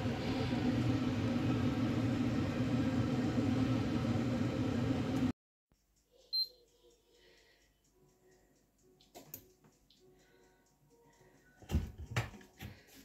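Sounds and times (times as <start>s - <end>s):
mechanical hum with hiss: 0.0s - 5.3s.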